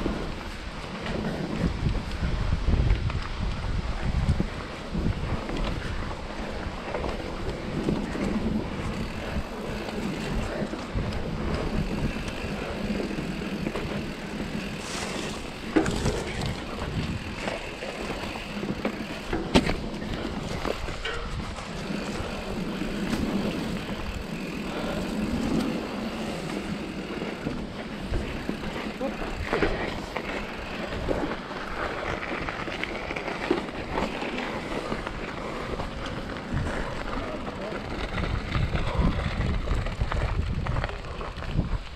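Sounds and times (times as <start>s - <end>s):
bike tyre and drivetrain rattle: 0.0s - 41.9s
bike knocking over bumps: 11.4s - 31.2s.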